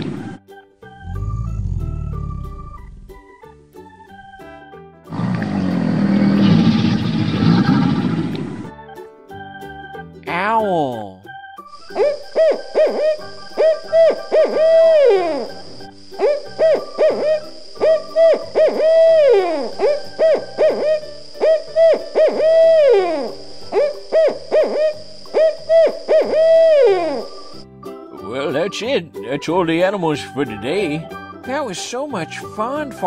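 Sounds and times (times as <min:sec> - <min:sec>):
owl hooting: 0:11.8 - 0:27.6.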